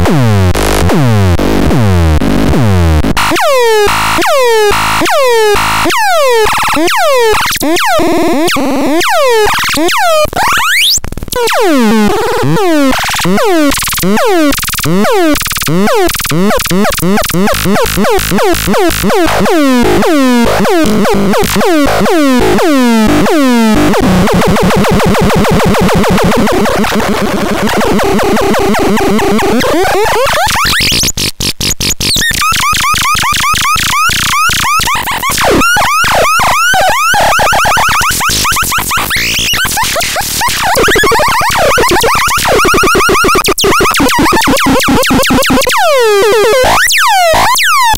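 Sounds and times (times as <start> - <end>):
electronic chirps: 32.1 - 47.9.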